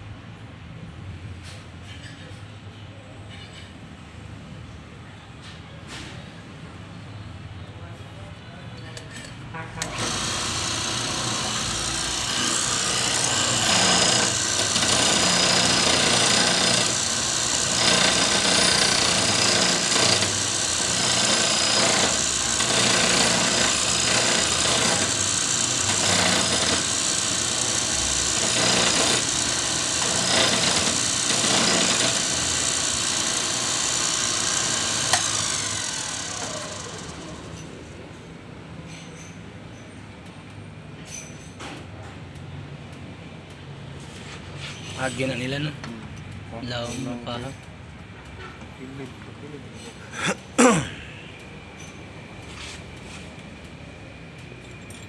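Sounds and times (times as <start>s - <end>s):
grinder grinding steel: 9.8s - 37.8s.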